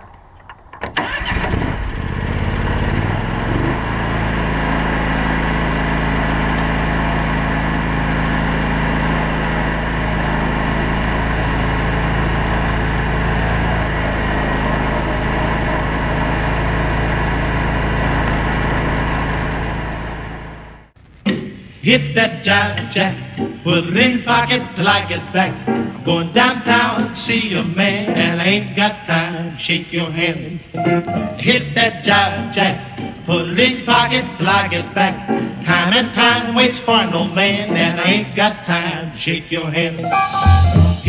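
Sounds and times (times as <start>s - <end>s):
lawn tractor engine: 0.8s - 20.8s.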